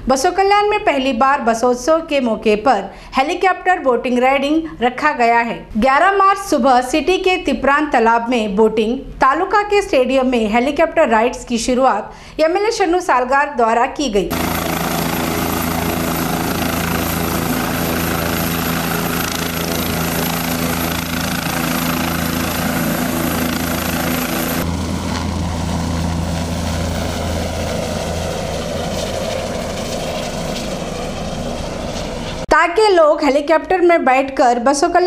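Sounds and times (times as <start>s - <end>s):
helicopter engine and rotor: 14.3s - 32.5s.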